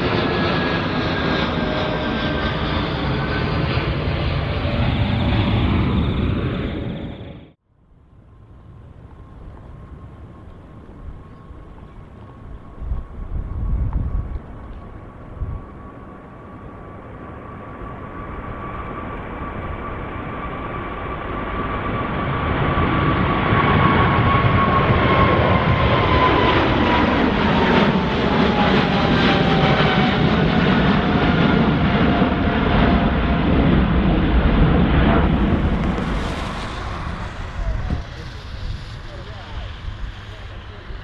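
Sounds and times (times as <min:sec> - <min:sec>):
high engine whine: 0:00.0 - 0:41.0
jet engine roar overhead: 0:00.0 - 0:41.0.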